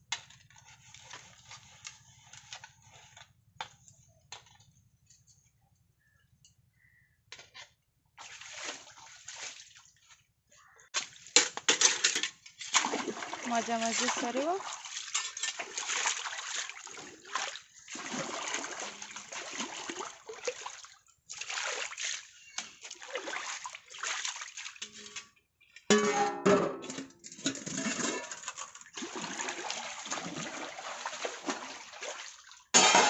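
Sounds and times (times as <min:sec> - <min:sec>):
water splashing and sloshing: 0:07.3 - 0:33.0
steel dishes clattering: 0:11.4 - 0:12.8, 0:15.0 - 0:15.6, 0:24.8 - 0:28.8, 0:32.8 - 0:33.0.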